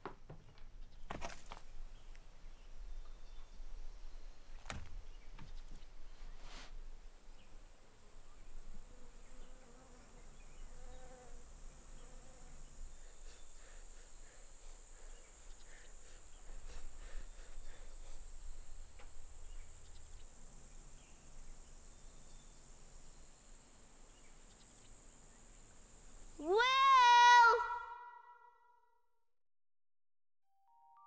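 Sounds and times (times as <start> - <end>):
insects chirping: 6.8 - 28.2.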